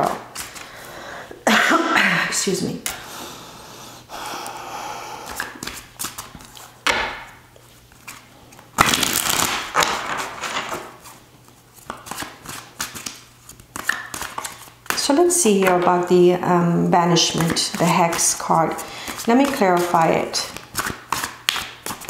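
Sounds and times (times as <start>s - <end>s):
cards being shuffled: 5.3s - 6.7s, 7.9s - 15.8s, 17.2s - 22.0s.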